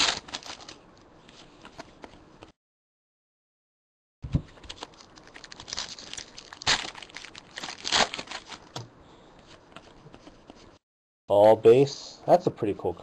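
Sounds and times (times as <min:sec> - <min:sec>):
foil wrappers crinkling and tearing: 0:00.0 - 0:00.8, 0:04.6 - 0:08.7.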